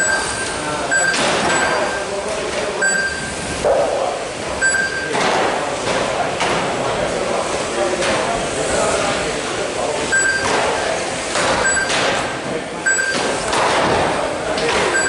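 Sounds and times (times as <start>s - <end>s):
short high electronic beeps: 0.0s - 2.1s, 2.8s - 3.6s, 4.6s - 5.1s, 10.1s - 10.5s, 11.6s - 12.0s, 12.8s - 13.4s.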